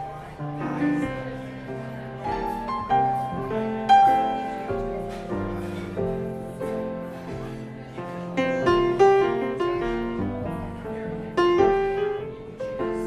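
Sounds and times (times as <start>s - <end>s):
grand piano playing: 0.0s - 13.0s.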